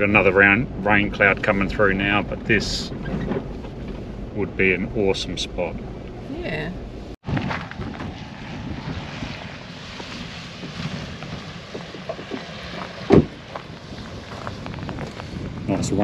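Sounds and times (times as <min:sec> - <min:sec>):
wind blowing across microphone: 0:00.0 - 0:16.0
loud thump: 0:11.7 - 0:13.6.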